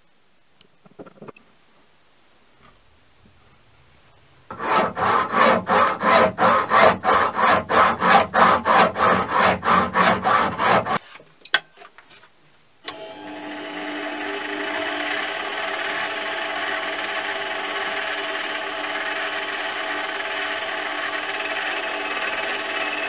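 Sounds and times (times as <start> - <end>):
hacksaw cutting metal: 4.5 - 11.0
mini lathe running: 4.5 - 11.0, 12.9 - 23.0.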